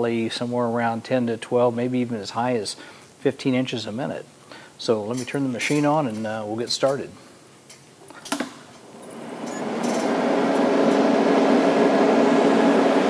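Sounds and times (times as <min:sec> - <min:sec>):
cooling fan humming: 0:00.0 - 0:13.0.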